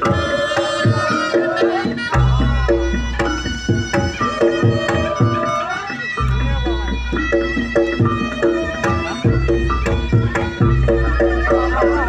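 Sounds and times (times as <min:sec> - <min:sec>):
shawm melody: 0:00.0 - 0:12.0.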